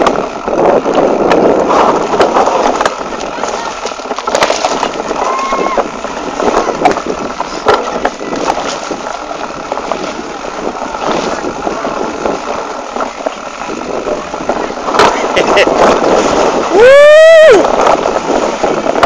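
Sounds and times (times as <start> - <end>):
bike rattling over dirt trail: 0.0 - 19.0
wind on microphone: 0.0 - 19.0
knocks and clatter from bumps: 6.5 - 9.0.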